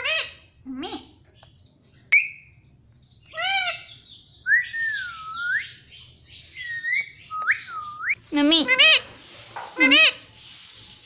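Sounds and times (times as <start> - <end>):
parakeet squawking and whistling: 9.8 - 10.2.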